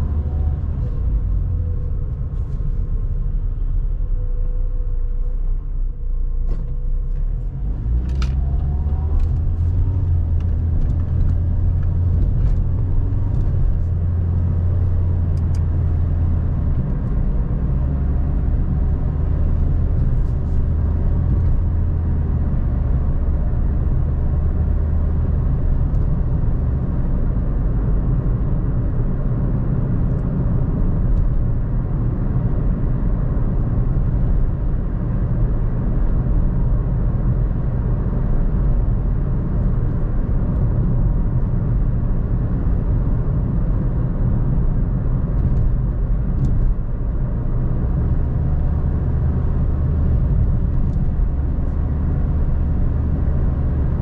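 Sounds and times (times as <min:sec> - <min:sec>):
car engine and tyre rumble: 0:00.0 - 0:54.0.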